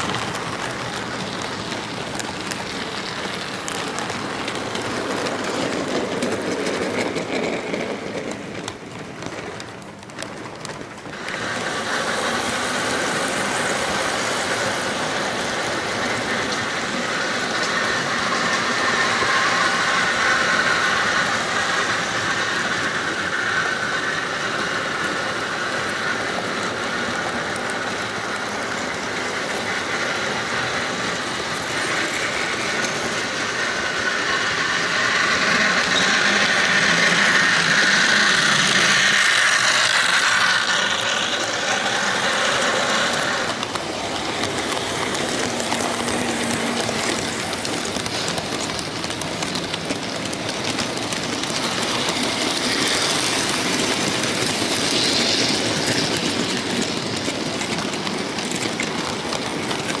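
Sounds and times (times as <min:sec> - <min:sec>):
wheels clicking over track: 0:00.0 - 1:00.0
model train motor whirring: 0:00.1 - 1:00.0.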